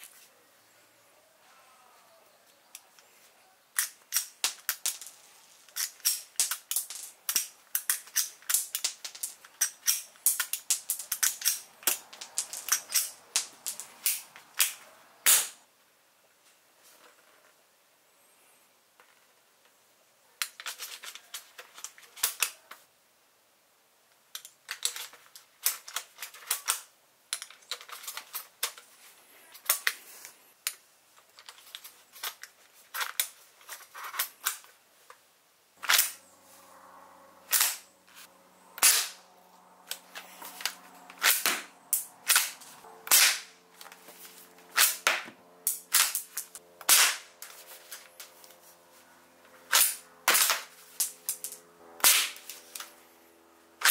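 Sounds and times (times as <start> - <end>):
loud sharp rifle shots: 43.1 - 43.5, 46.9 - 47.3.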